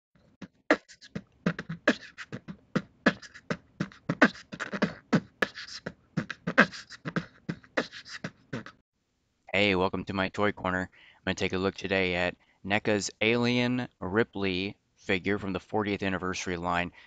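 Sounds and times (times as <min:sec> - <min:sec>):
beatboxing: 0:00.3 - 0:08.8.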